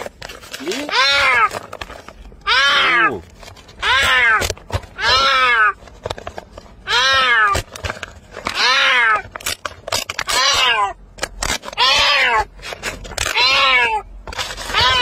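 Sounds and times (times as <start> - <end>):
kitten meowing: 0.7 - 1.5, 2.4 - 3.2, 3.8 - 4.4, 5.0 - 5.8, 6.9 - 7.6, 8.5 - 9.2, 10.3 - 11.0, 11.8 - 12.5, 13.3 - 14.0, 14.7 - 15.0.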